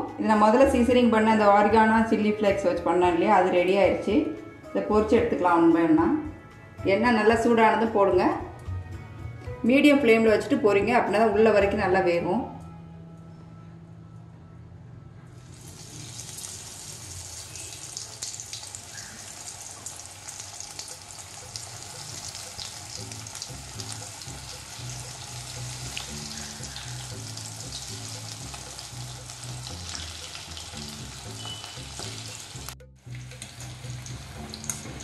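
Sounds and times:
chicken deep-frying in hot oil: 15.4s - 35.0s.

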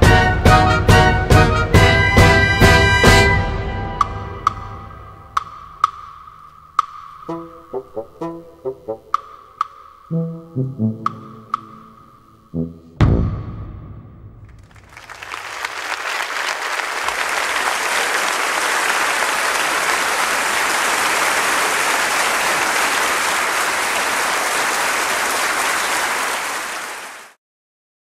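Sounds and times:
audience applauding: 14.5s - 27.4s.

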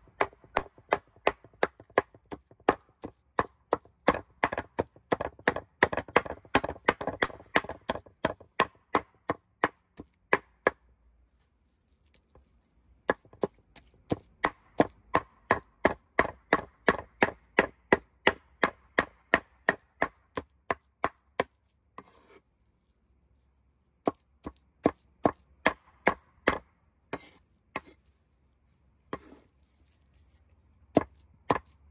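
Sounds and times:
cleaver chopping on wooden board: 0.1s - 10.8s, 13.0s - 22.2s, 24.0s - 28.0s, 30.9s - 31.8s.

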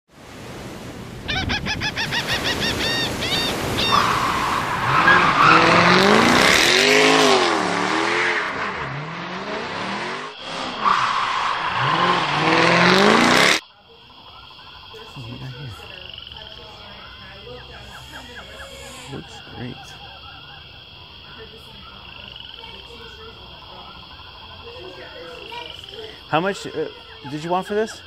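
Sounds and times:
tires squealing: 2.2s - 13.6s
race car engine revving: 3.9s - 13.6s.

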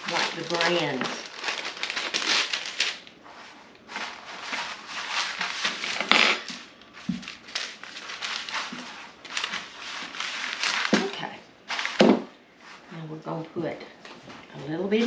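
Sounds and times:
paper rustling and crinkling: 0.0s - 12.9s
rolling pin rolling over paper: 2.8s - 13.2s.

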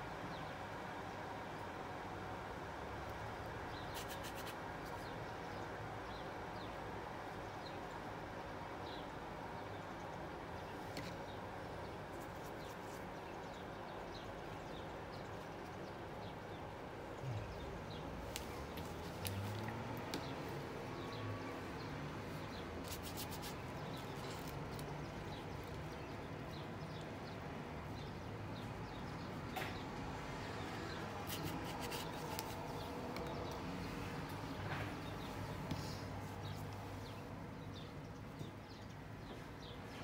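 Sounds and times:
paintbrush rubbing on paper: 3.9s - 5.0s, 22.4s - 24.5s, 31.2s - 32.9s.

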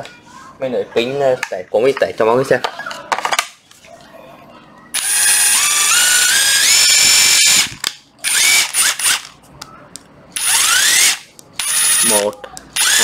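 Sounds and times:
impact driver motor whine: 5.0s - 9.3s, 10.4s - 12.1s, 12.8s - 13.0s.

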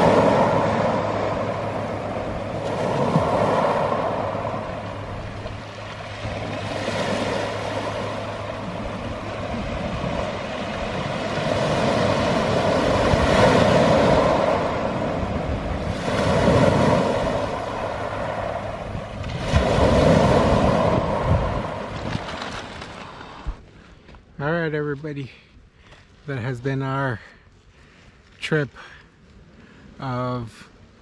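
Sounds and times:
waves washing on cobble beach: 0.0s - 23.7s.

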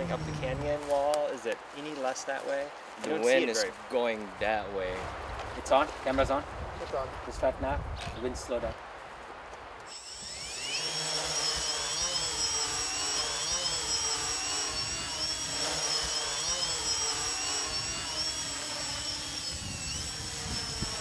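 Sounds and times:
wind rumbling on microphone: 0.0s - 1.0s, 4.4s - 9.0s, 19.2s - 21.0s
drone motors whining: 9.9s - 21.0s.

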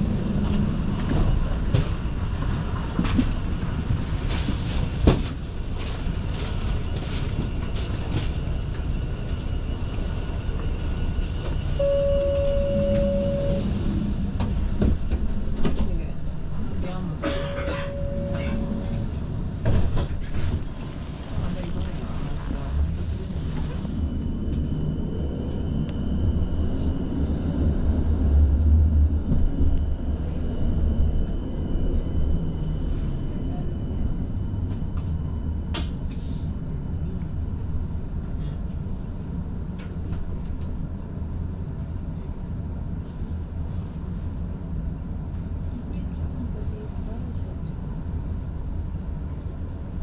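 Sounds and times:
tram rumbling on rails: 0.0s - 50.0s
thin high whine: 11.8s - 13.9s, 17.2s - 19.3s.

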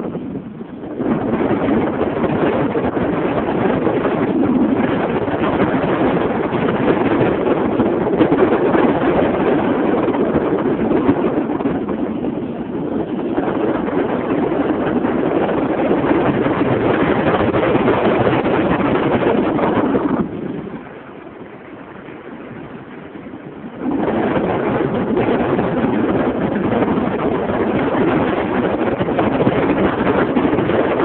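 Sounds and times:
wind rushing over microphone: 0.0s - 31.0s.

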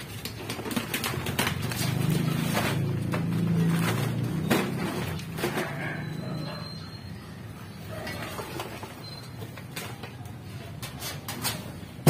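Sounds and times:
objects knocking and clattering: 0.0s - 6.2s.

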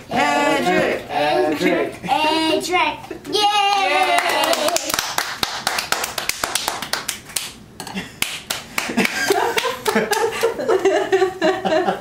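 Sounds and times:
hand claps: 3.7s - 7.6s, 8.2s - 10.6s
people laughing: 8.9s - 12.0s.

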